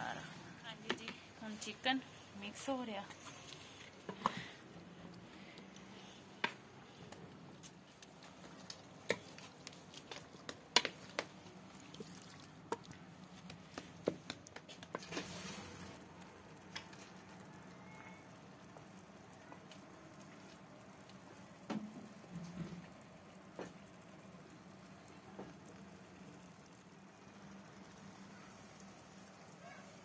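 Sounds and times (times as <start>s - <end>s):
soft squelching of marinade: 5.1s - 17.4s.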